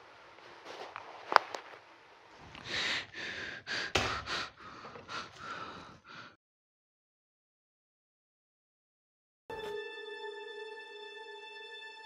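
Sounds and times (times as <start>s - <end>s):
man breathing hard: 2.4s - 6.4s.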